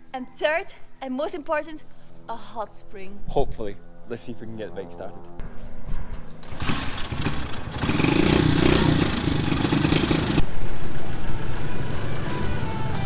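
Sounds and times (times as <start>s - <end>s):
motorbike engine running: 6.5s - 10.4s.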